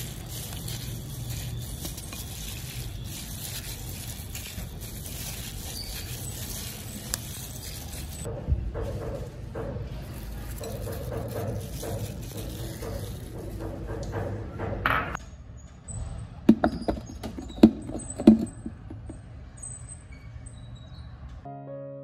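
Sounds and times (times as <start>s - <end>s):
plastic glove crinkling: 0.0s - 8.3s, 10.0s - 13.9s
wet squelching and scraping in bowl: 0.0s - 8.3s, 10.0s - 14.1s.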